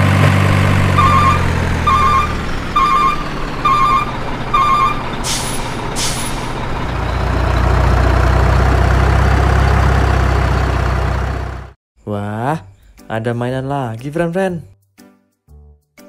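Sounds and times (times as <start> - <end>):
diesel truck engine running: 0.0 - 11.8
truck reversing beep: 0.3 - 11.6
air brake hisses: 5.2 - 6.6.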